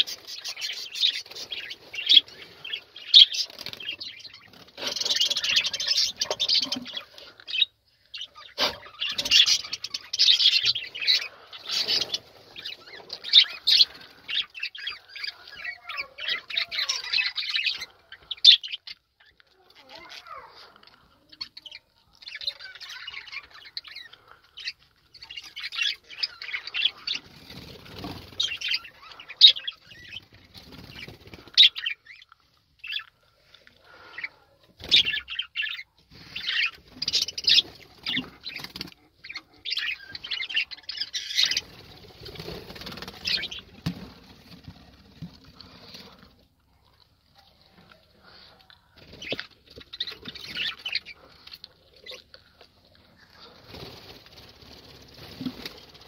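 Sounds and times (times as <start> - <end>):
budgerigars chirping: 0.0 - 15.3, 34.9 - 41.7.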